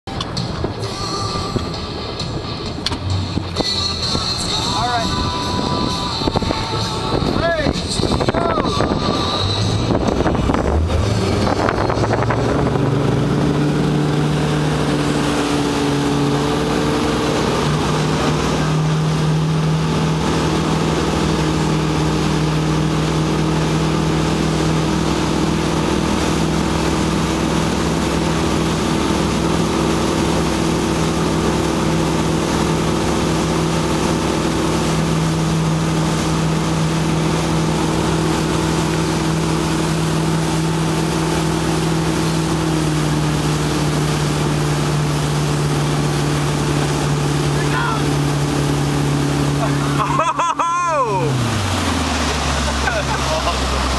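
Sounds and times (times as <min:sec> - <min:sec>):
motorboat engine: 0:00.0 - 0:53.9
rushing water: 0:00.0 - 0:53.9
wind on microphone: 0:02.4 - 0:18.7.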